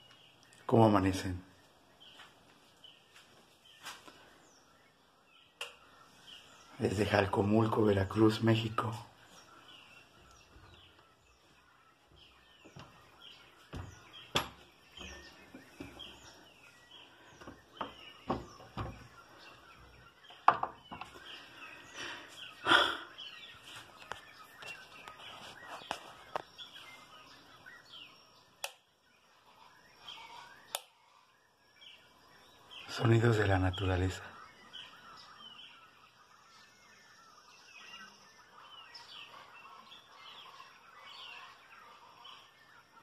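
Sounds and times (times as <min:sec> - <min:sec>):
birds chirping: 0:00.0 - 0:43.0
sharp knocks: 0:13.7 - 0:16.0.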